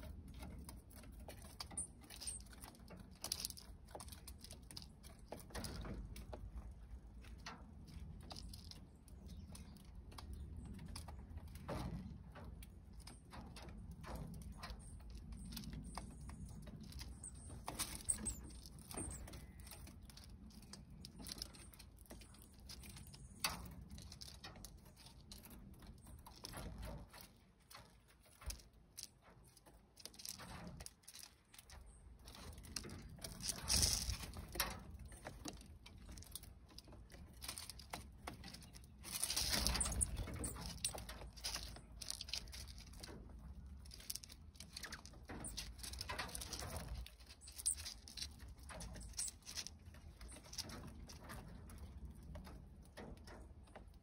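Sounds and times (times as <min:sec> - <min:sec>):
birds pecking seeds: 0:00.0 - 0:54.0.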